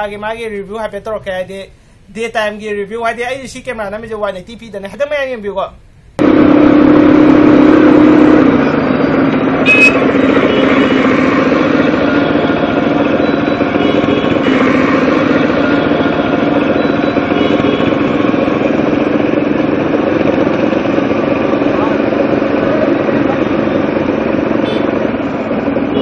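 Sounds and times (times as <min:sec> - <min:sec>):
road and wind noise: 0:06.1 - 0:26.0
motorcycle engine running: 0:06.2 - 0:26.0
short high-pitched beep: 0:09.6 - 0:10.6.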